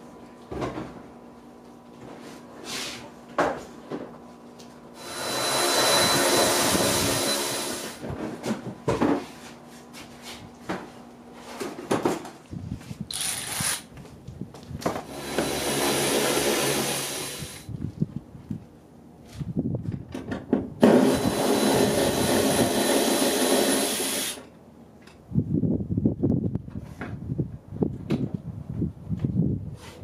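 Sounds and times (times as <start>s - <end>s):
small motor whirring: 5.0s - 8.0s, 13.1s - 13.9s, 15.0s - 17.7s, 20.9s - 24.4s
knocks and clatter of car parts: 11.6s - 12.4s, 19.8s - 20.8s.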